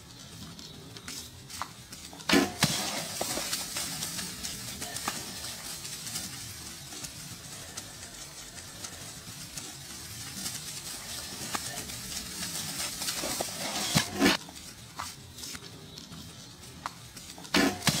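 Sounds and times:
rustling and crackling: 0.0 - 18.0
steady hiss: 0.0 - 18.0
sharp cracks: 1.6 - 6.2.

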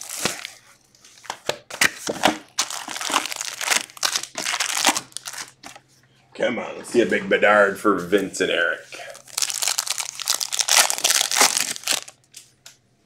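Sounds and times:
foil packs crinkling: 0.0 - 0.6, 1.2 - 5.8, 9.0 - 12.4.

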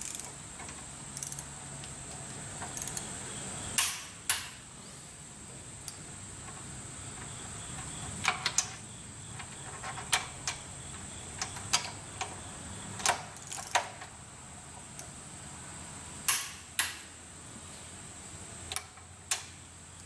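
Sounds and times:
torque wrench clicking: 0.0 - 1.5, 2.7 - 3.1, 13.0 - 13.9.

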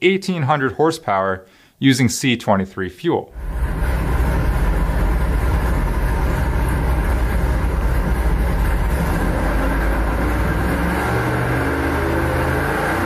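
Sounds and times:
engine running and revving: 3.4 - 13.0.

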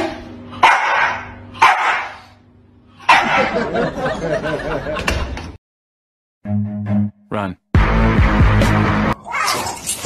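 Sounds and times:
small dog barking: 0.6 - 2.2, 3.1 - 3.5.

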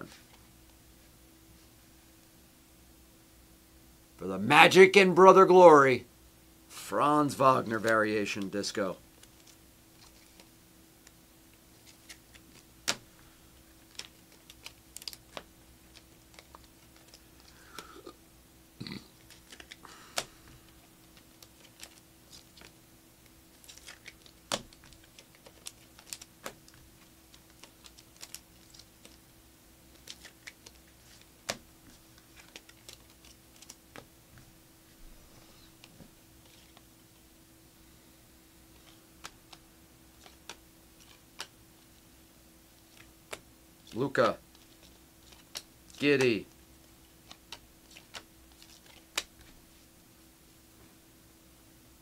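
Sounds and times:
faint steady hum: 0.0 - 52.0
cards clicking and tapping: 9.2 - 18.1, 19.2 - 29.2, 29.9 - 34.1, 35.7 - 36.9, 38.7 - 41.6, 42.8 - 49.6.

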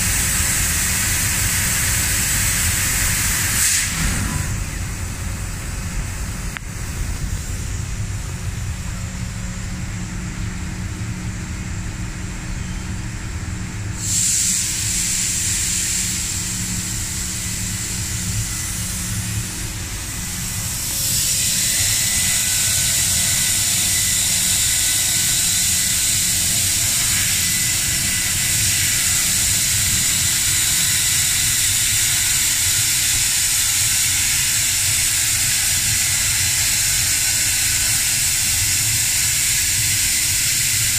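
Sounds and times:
gas jet hissing: 0.0 - 7.7, 14.0 - 40.9
laser cutting machine hum: 0.0 - 40.9
faint high whistle: 12.5 - 13.0.

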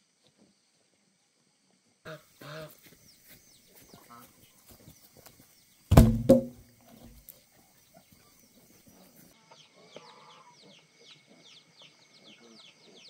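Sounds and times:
wooden log thudding on ground: 5.9 - 7.2.

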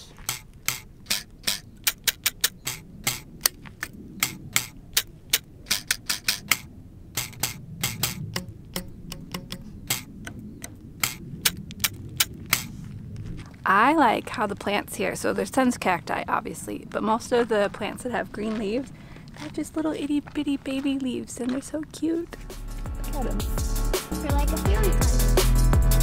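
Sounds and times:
cactus spines plucked clicking: 0.0 - 12.8.

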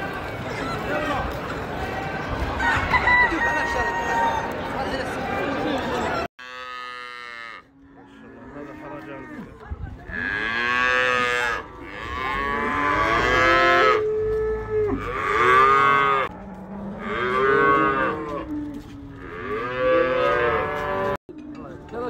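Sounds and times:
cattle mooing: 6.4 - 21.2.

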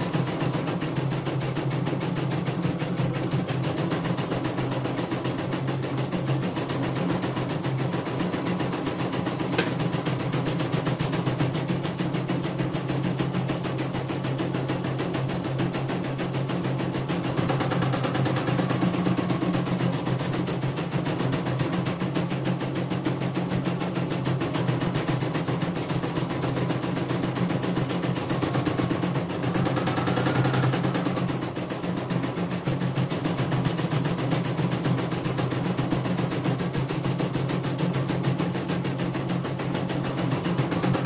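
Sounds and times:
machine motor hum: 0.0 - 24.2
embroidery machine needle clatter: 0.0 - 41.0.

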